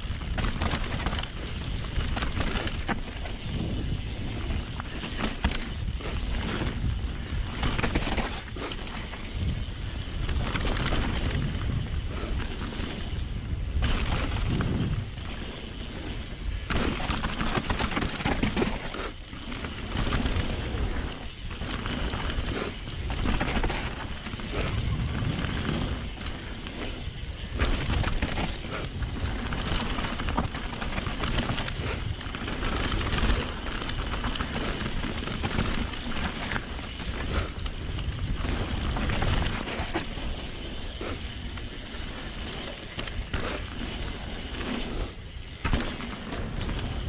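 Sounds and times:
wind rushing over microphone: 0:00.0 - 0:18.6, 0:19.8 - 0:41.1
bike rattling and knocking: 0:00.0 - 0:47.0.

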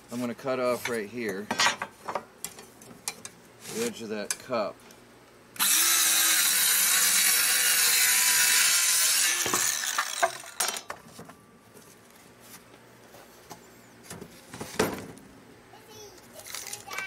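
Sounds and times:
circular saw cutting wood: 0:05.6 - 0:10.7.

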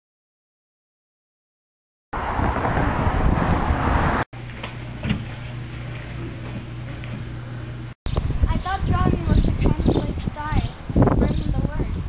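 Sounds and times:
steady low hum: 0:04.4 - 0:12.0.

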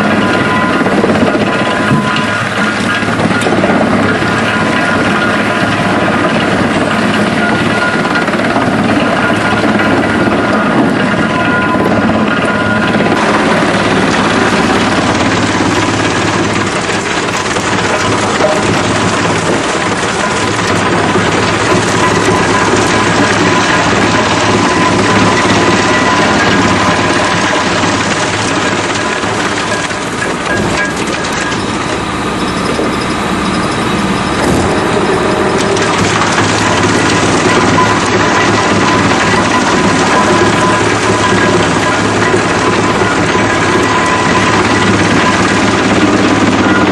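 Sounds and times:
high whine: 0:00.0 - 0:46.9
wood chipper running: 0:00.0 - 0:46.9
low hum: 0:12.5 - 0:46.8.

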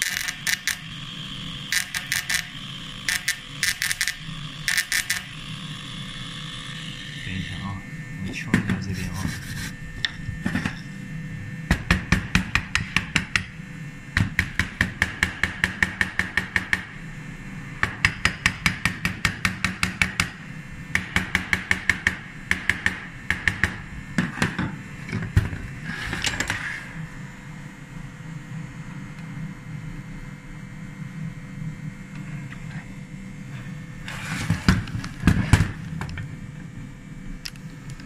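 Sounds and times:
faint steady hum: 0:00.0 - 0:38.0
rough metal scrape: 0:34.0 - 0:34.7.

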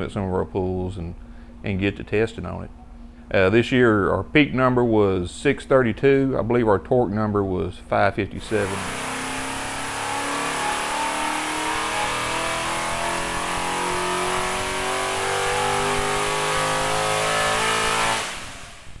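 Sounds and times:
engine revving under load: 0:08.4 - 0:19.0.

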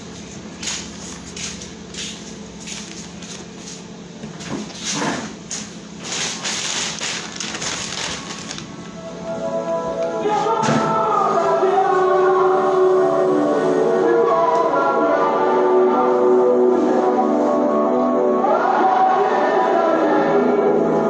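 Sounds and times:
steady low hum: 0:00.0 - 0:21.0
music with sustained chords: 0:08.8 - 0:21.0.

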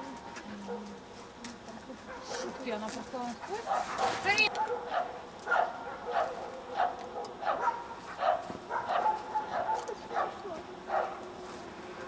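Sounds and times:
dog barking: 0:03.6 - 0:11.2.

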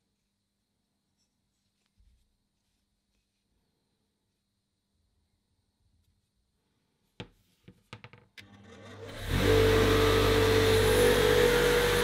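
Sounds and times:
bench grinder motor humming: 0:08.4 - 0:12.0.

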